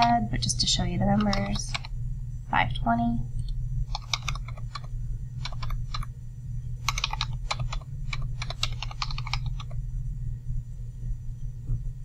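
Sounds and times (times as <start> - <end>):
steady low hum: 0.0 - 12.0
typing on computer keyboard: 1.1 - 1.9, 3.9 - 6.1, 6.8 - 9.8.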